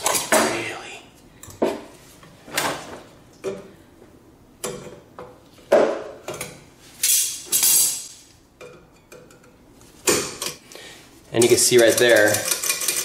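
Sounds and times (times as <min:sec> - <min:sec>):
pliers clinking on metal springs: 0:07.0 - 0:08.3.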